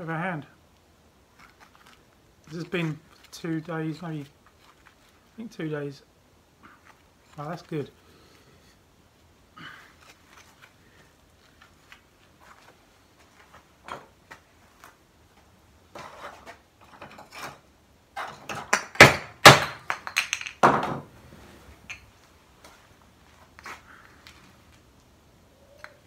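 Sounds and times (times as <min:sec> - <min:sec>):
loud sharp knocks on wood: 0:18.7 - 0:21.1.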